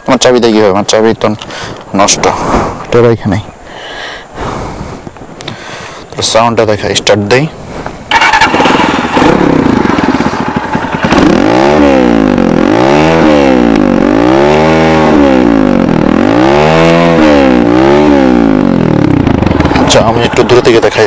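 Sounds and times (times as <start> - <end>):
motorcycle engine revving: 8.0 - 21.0.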